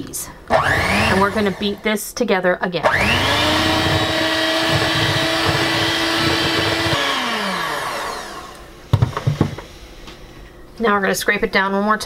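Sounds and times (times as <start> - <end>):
electric hand mixer motor: 0.5 - 1.8, 2.9 - 9.6.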